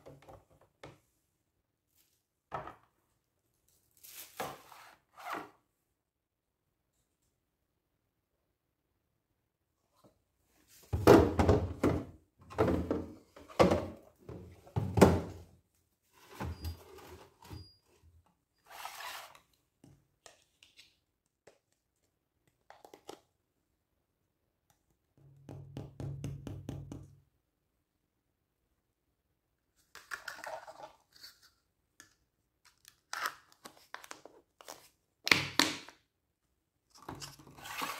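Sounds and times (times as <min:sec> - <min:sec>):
plastic containers set on countertop: 0:02.0 - 0:03.2, 0:19.1 - 0:23.5, 0:29.7 - 0:36.2.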